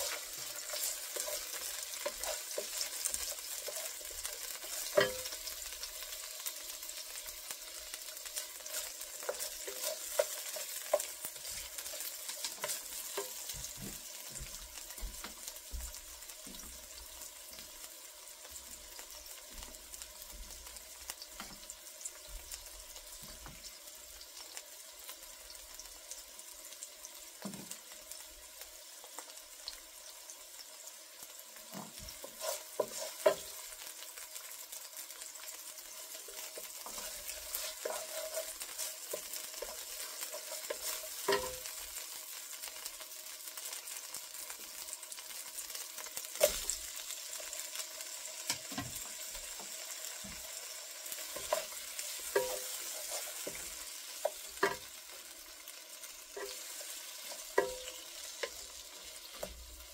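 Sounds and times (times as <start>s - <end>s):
wooden spatula scraping a pan: 0.0s - 5.8s, 7.8s - 16.6s, 31.6s - 34.5s, 35.4s - 41.9s, 48.4s - 55.2s, 56.0s - 59.7s
onions sizzling in oil: 0.0s - 59.9s.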